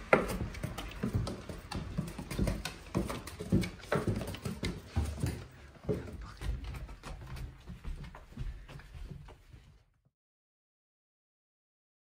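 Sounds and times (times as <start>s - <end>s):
dog claws tapping on wooden stairs: 0.0s - 9.5s.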